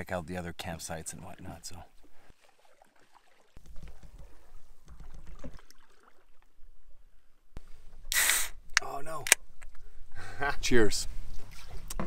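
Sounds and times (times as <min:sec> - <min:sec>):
water lapping at shore: 0:01.1 - 0:07.0, 0:11.1 - 0:12.0
paddles dipping in water: 0:01.1 - 0:07.1, 0:11.2 - 0:12.0
small splashes: 0:01.3 - 0:06.7, 0:11.3 - 0:12.0.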